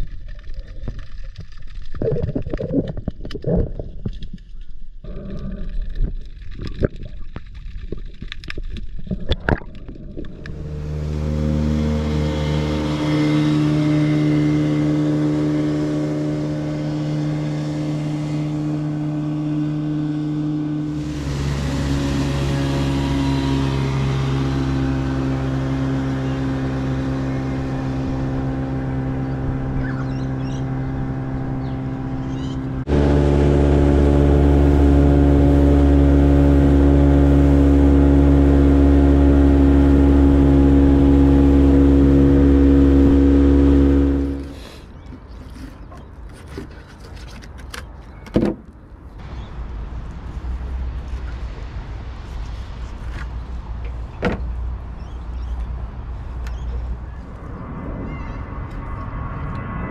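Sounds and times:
sharp clicks underwater: 0.0 - 10.6
outboard motor running: 9.0 - 47.8.

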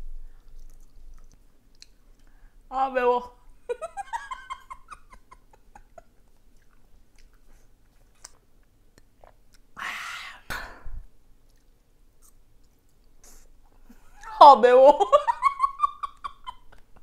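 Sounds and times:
person chewing: 0.2 - 2.5, 5.8 - 9.8, 11.4 - 13.7.

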